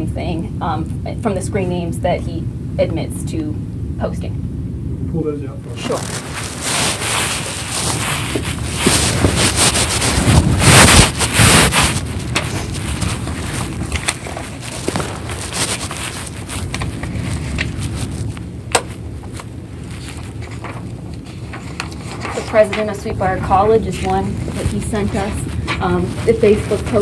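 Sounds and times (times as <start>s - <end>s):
paper rustling and crackling: 5.7s - 27.0s.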